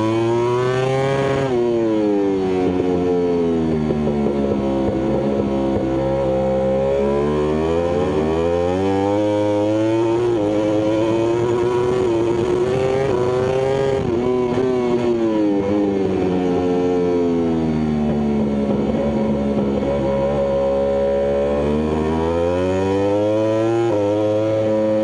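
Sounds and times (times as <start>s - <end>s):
motorcycle engine at racing speed: 0.0s - 25.0s.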